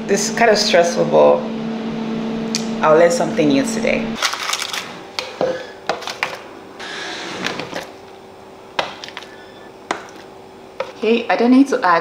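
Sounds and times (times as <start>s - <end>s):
faint steady hum: 5.0s - 12.0s.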